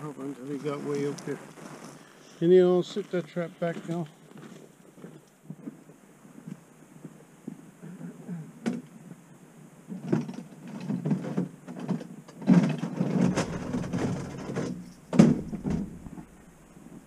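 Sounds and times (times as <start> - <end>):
trap scraping and rustling: 12.8 - 16.8
sharp knock: 13.2 - 17.0.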